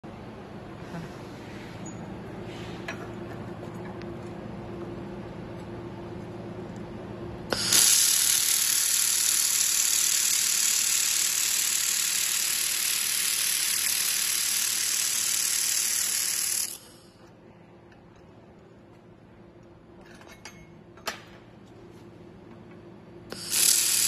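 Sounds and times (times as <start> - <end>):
welding gun hissing: 7.5 - 17.1, 23.3 - 24.0.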